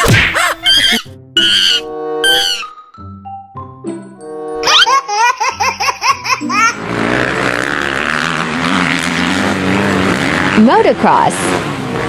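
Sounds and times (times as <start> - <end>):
chimpanzee hooting: 0.3 - 2.8
motorcycle engine running: 6.3 - 12.0.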